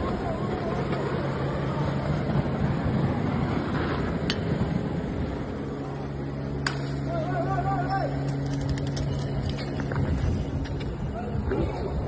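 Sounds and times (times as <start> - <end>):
wind buffeting microphone: 7.3 - 12.0.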